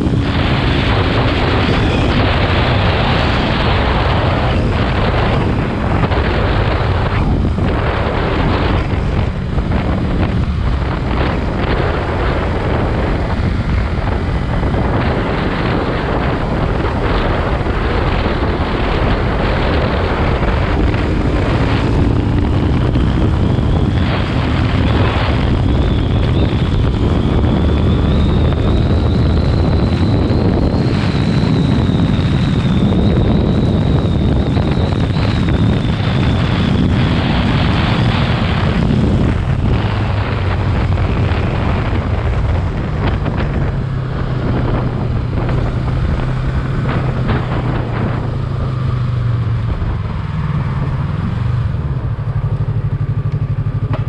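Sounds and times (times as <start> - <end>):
motorcycle engine running: 0.0 - 54.0
wind noise on microphone: 0.0 - 54.0.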